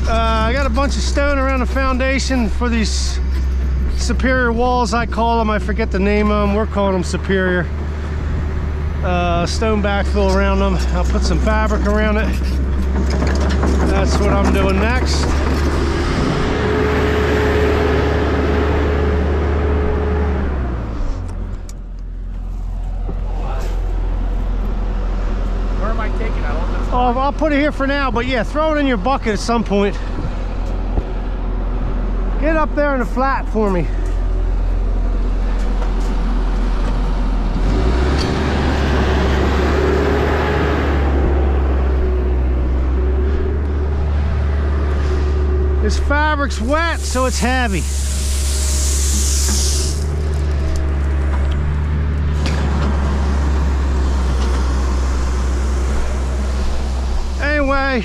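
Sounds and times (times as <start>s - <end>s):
heavy equipment engine running: 0.0s - 58.0s
high mechanical whine: 41.0s - 58.0s.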